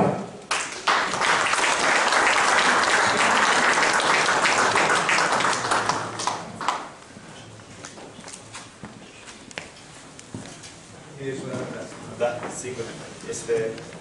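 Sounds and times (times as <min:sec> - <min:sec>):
audience applauding: 0:00.5 - 0:07.0.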